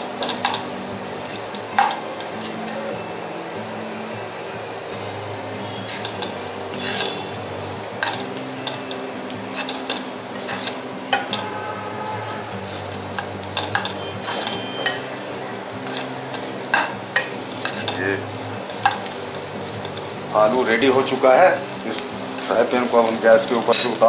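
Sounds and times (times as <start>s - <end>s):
pan sizzling: 0.0s - 24.0s
spatula scraping frying pan: 5.8s - 7.3s, 8.0s - 15.0s.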